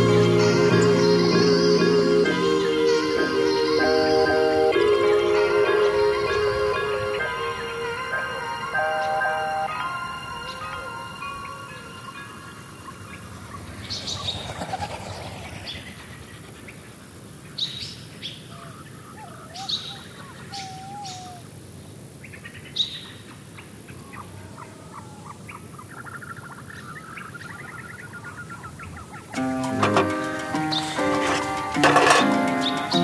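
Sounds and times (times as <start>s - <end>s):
steady high hiss: 0.0s - 13.3s
birds chirping: 0.0s - 14.6s, 22.2s - 33.0s.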